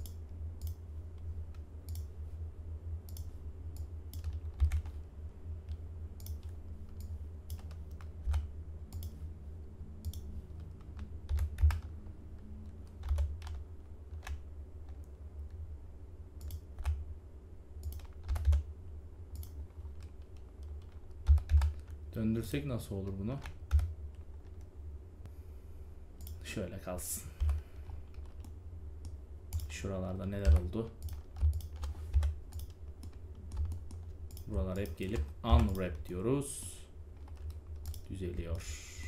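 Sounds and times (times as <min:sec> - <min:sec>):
steady low hum: 0:00.0 - 0:39.0
computer keyboard typing: 0:04.1 - 0:05.0, 0:05.7 - 0:09.1, 0:10.0 - 0:12.0, 0:12.6 - 0:15.1, 0:17.8 - 0:18.7, 0:19.3 - 0:22.0, 0:23.0 - 0:24.7, 0:27.4 - 0:36.0, 0:37.2 - 0:38.1.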